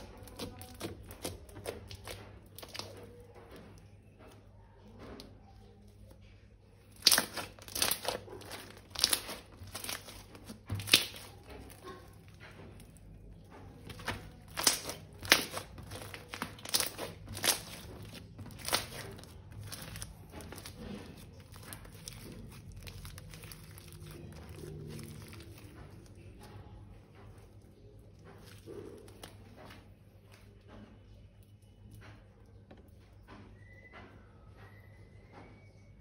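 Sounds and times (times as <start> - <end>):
plastic wrapping crinkling: 0.0 - 3.9, 6.8 - 26.6.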